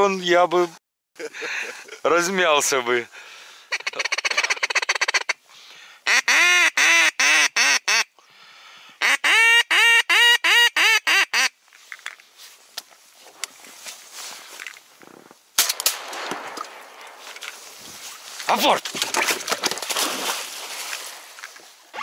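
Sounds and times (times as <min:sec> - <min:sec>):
duck call clicking chatter: 0:03.7 - 0:05.4, 0:09.0 - 0:11.5
duck call quacks: 0:03.7 - 0:05.4, 0:06.0 - 0:08.1, 0:09.0 - 0:11.6.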